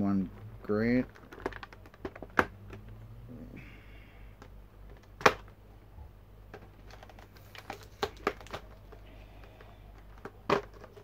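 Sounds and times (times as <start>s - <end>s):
plastic packaging clicks and crackles: 0.8s - 2.9s, 6.5s - 11.0s.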